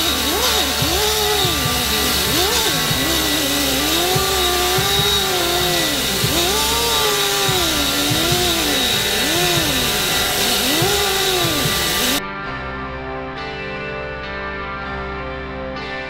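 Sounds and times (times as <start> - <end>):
cut-off wheel grinding metal pipe: 0.0 - 12.2.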